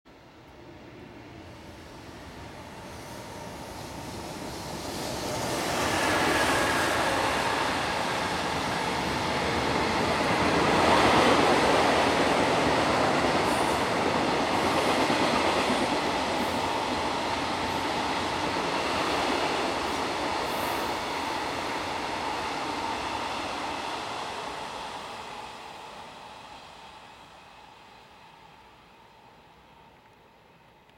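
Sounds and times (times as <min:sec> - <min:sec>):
freight train passing: 0:00.1 - 0:30.9.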